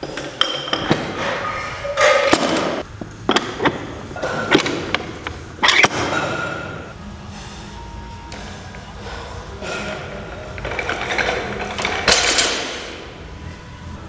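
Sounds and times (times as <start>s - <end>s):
weight plates clanking on barbell: 0.0s - 5.0s.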